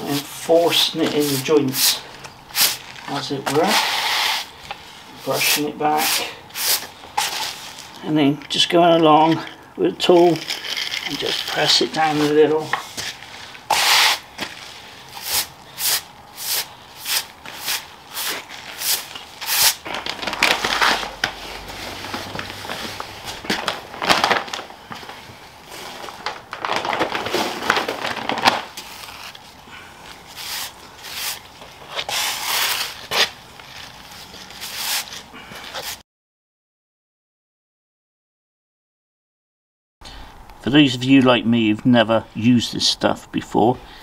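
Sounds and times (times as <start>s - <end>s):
stiff broom sweeping gritty sand: 0.0s - 7.9s, 11.5s - 19.9s, 30.3s - 33.4s, 34.6s - 36.0s.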